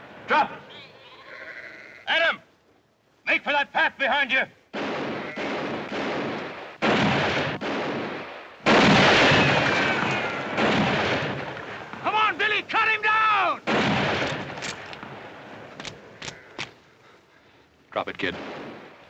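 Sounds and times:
echoing gunshots: 0:04.7 - 0:12.7, 0:13.6 - 0:16.7, 0:18.2 - 0:19.0.

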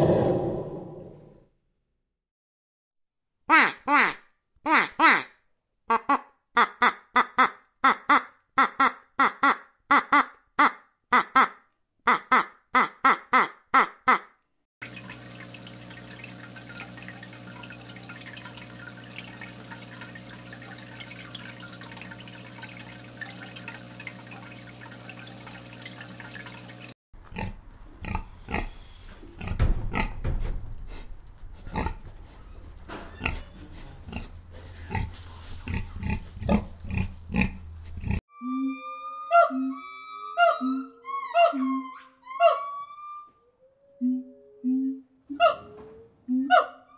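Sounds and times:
trickling water: 0:14.8 - 0:27.0
pigs grunting: 0:27.3 - 0:30.1, 0:31.6 - 0:32.0, 0:32.9 - 0:38.2.

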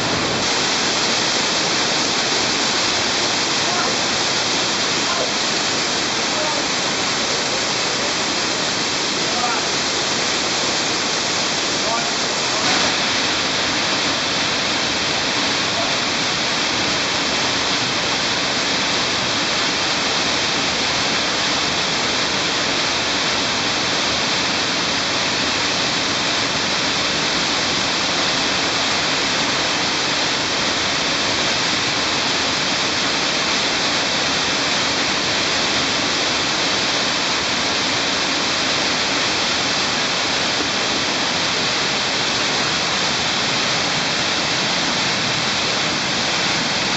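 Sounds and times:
stream rushing down cascade: 0:00.0 - 0:46.9.

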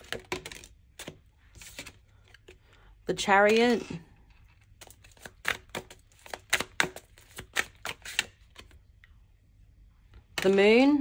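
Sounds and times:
cards being shuffled: 0:00.0 - 0:02.7, 0:04.4 - 0:08.8.

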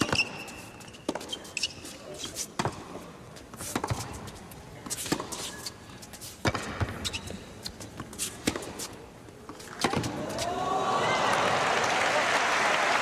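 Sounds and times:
ball bouncing on court: 0:03.7 - 0:05.4, 0:06.4 - 0:07.4, 0:09.5 - 0:10.5
tennis ball hitting racquet strings: 0:06.4 - 0:07.0, 0:08.1 - 0:10.5
crowd noise: 0:09.5 - 0:13.0.

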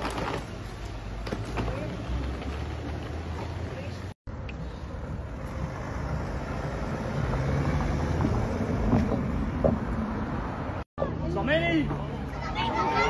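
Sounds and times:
car driving slowly past: 0:04.3 - 0:10.8.

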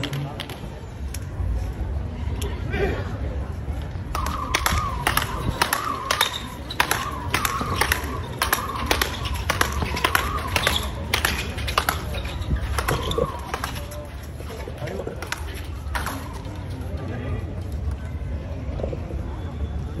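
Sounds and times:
paddle rackets striking ball: 0:04.2 - 0:16.5.

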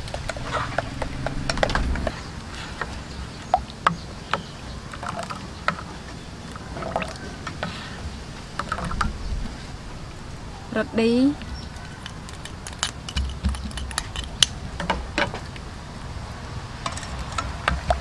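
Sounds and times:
low hum: 0:00.0 - 0:03.7.

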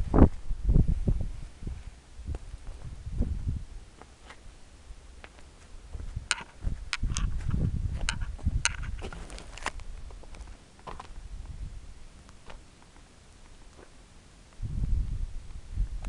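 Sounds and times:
low rumble: 0:00.0 - 0:03.9, 0:14.6 - 0:16.0
footsteps crunching on snow: 0:05.2 - 0:11.2.

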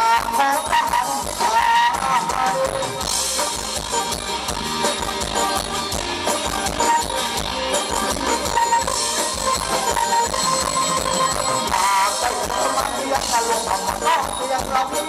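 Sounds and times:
steady drum beat: 0:00.0 - 0:15.0
repeating melody line: 0:02.6 - 0:15.0.

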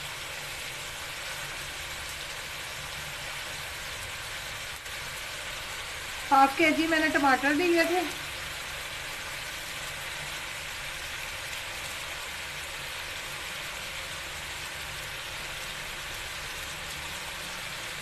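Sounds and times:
oil sizzling: 0:00.0 - 0:18.0.

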